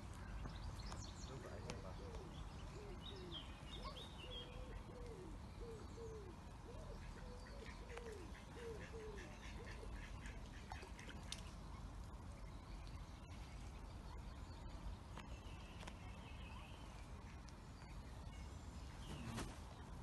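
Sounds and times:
ducklings peeping: 6.9s - 19.5s.

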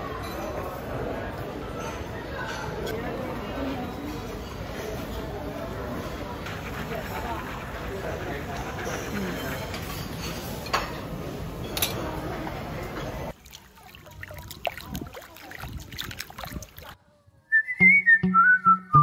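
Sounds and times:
busy background noise: 0.0s - 18.7s
whistled melody over bass: 17.5s - 19.0s.

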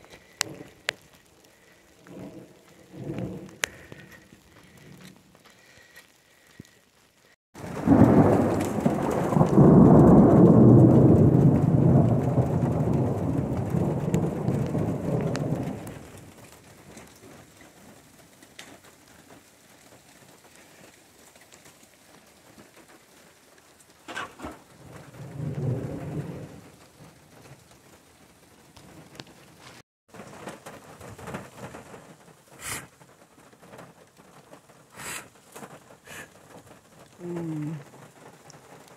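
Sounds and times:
thunder rumbling: 0.0s - 5.8s, 7.6s - 17.9s, 24.1s - 27.7s.

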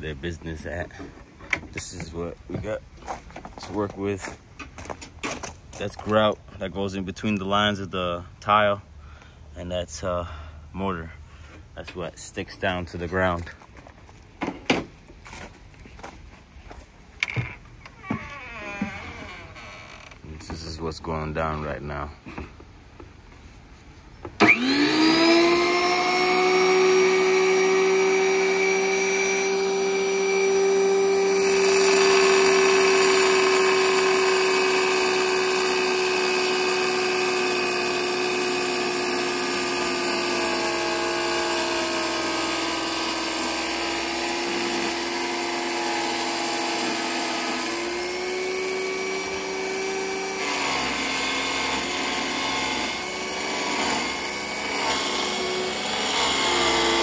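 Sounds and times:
tile saw motor whine: 24.4s - 57.0s.

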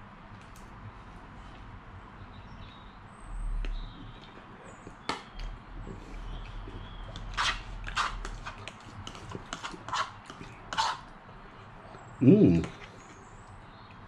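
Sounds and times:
wet slurps and chewing: 5.8s - 11.1s.

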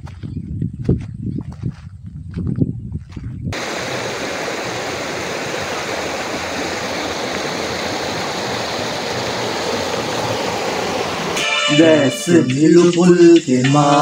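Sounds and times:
flowing water rushing: 3.6s - 14.0s.

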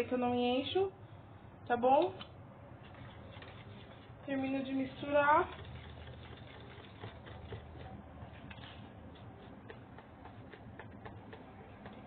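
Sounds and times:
wire whisk clicking and scraping bowl: 4.7s - 12.0s.

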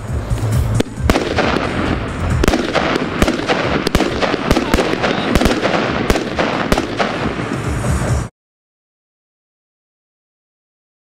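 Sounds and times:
hissing crackle of firework shots: 0.0s - 8.3s
sharp firework bangs: 0.7s - 8.3s.

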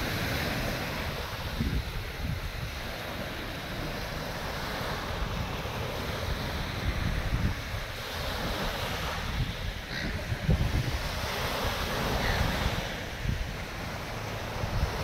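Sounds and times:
small waves: 0.0s - 15.0s
wind buffeting microphone: 0.0s - 15.0s
wind hiss: 0.0s - 15.0s.

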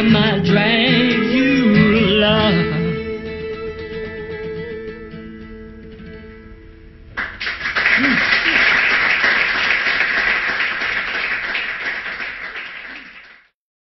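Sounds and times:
guitar chord ringing: 0.0s - 7.2s
audience clapping and cheering: 7.2s - 13.5s.

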